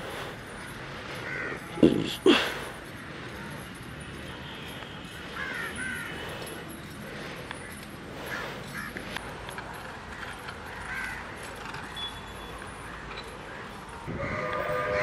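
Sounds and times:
crows cawing: 1.2 - 1.8, 5.2 - 6.4, 7.6 - 9.0, 10.2 - 11.7, 12.8 - 15.0
train rumbling: 11.6 - 15.0
train horn: 14.1 - 15.0.

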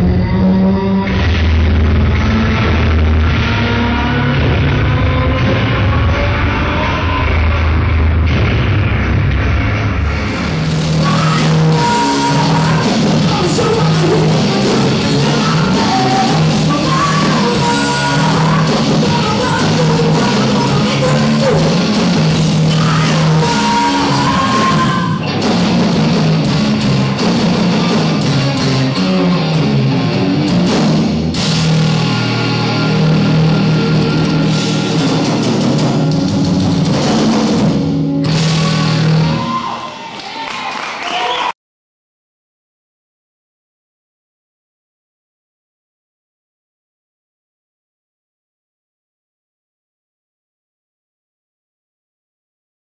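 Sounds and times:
live distorted rock band: 0.0 - 41.5
person singing: 11.0 - 21.9, 22.6 - 25.3.

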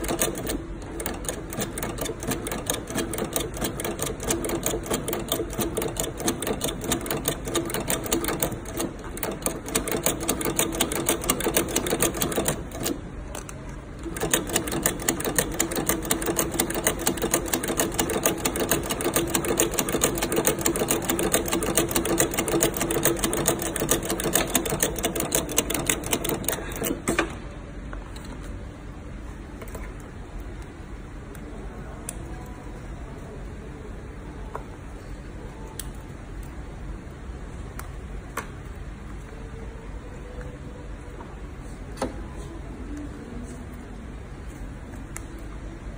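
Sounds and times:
sewing machine clattering: 0.0 - 13.0, 14.0 - 27.3
quiet hum: 0.0 - 45.9.

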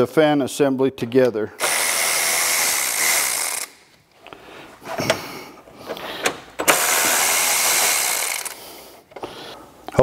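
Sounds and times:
electric ratchet spinning: 1.6 - 3.8, 6.6 - 8.6
ratchet click: 1.6 - 3.8, 6.6 - 8.6.

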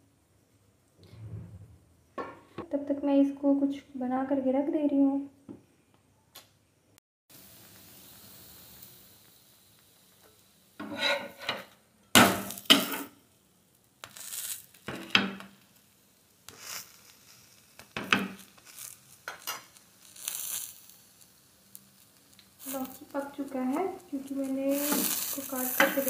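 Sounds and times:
metal spatula scraping griddle: 10.8 - 13.2, 24.7 - 26.0.

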